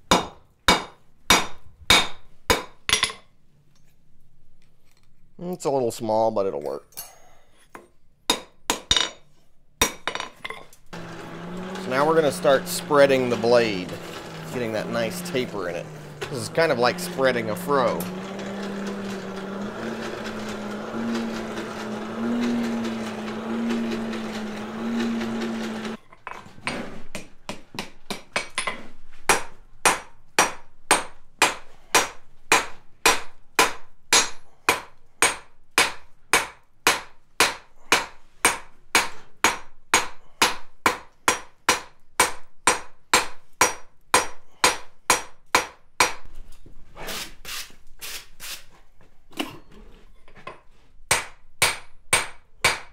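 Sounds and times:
hammer striking steel on anvil: 0:00.1 - 0:03.2, 0:08.3 - 0:09.2, 0:51.1 - 0:52.9
forge blower humming: 0:11.0 - 0:26.0.

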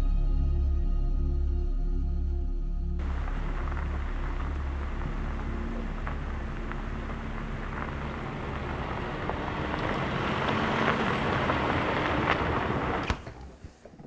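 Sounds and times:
vehicle engine hum and tyre noise: 0:03.0 - 0:14.0.

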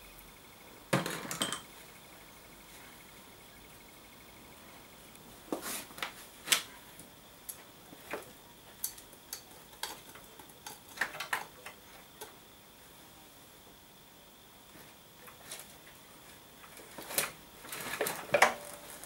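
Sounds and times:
small metal clicks and knocks: 0:07.5 - 0:12.4.

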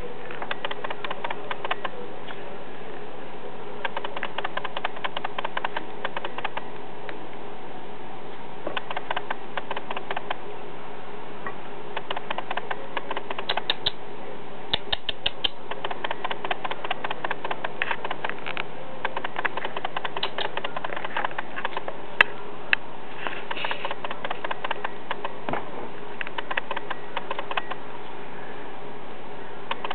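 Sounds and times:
rabbit scratching on bedding: 0:23.1 - 0:25.4.

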